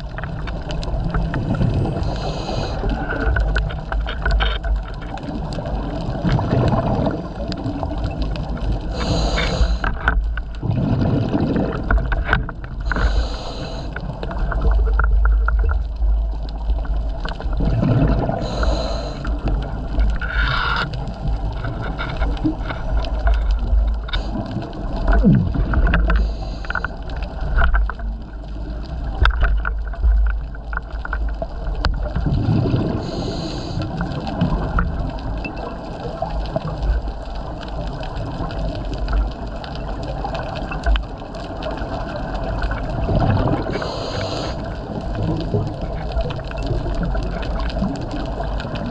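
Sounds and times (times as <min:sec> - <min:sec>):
exhaled bubbles gurgling: 0:00.0 - 0:48.9
regulator breathing hiss: 0:02.0 - 0:03.1, 0:08.9 - 0:09.9, 0:12.9 - 0:14.0, 0:18.4 - 0:19.4, 0:26.1 - 0:27.0, 0:33.0 - 0:33.9, 0:43.7 - 0:44.7.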